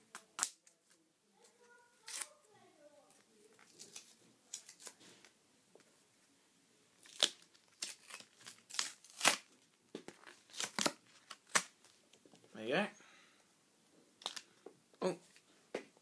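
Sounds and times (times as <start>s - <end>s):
packaging tearing and crinkling: 2.0s - 2.4s, 3.6s - 5.0s, 7.0s - 9.6s, 10.2s - 11.9s.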